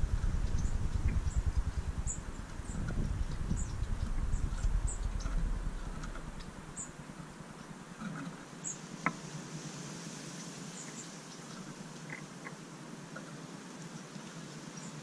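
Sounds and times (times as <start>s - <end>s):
low rumble: 0.0s - 6.8s.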